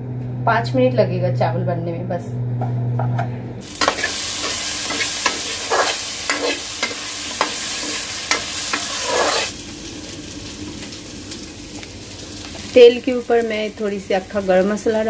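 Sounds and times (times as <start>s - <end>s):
potatoes sizzling in oil: 3.6s - 15.0s
ladle scraping and clinking pan: 3.8s - 9.5s.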